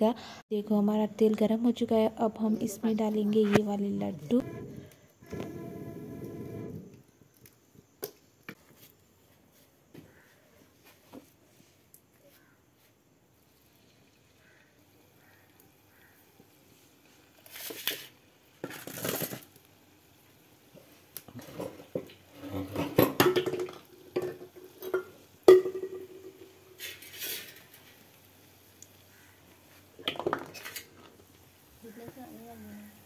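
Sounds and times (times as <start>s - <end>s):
hot oil hissing: 26.5s - 33.0s.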